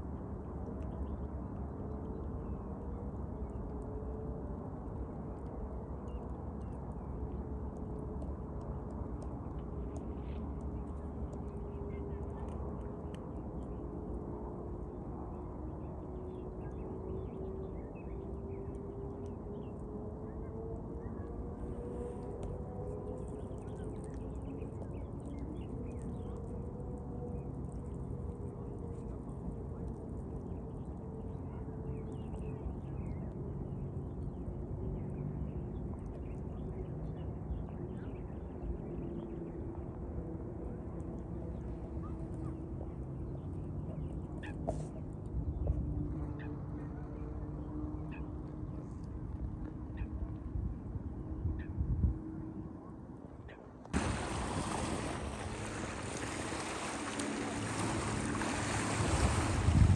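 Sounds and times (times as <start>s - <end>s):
faint hum: 0.0s - 59.9s
steady low rumble: 0.0s - 59.9s
wind buffeting microphone: 0.0s - 59.9s
jet ski engine humming: 53.9s - 59.9s
wind and water hiss: 53.9s - 59.9s.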